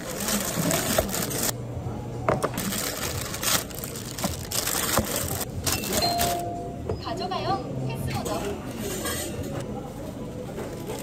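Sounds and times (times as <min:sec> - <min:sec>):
plastic bags rustling: 0:00.0 - 0:01.6, 0:02.6 - 0:06.4.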